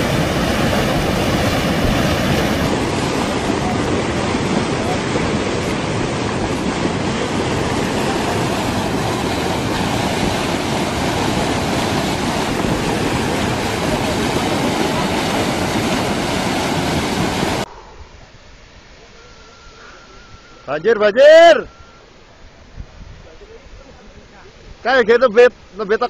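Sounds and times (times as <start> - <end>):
flash flood water rushing: 0.0 - 17.7.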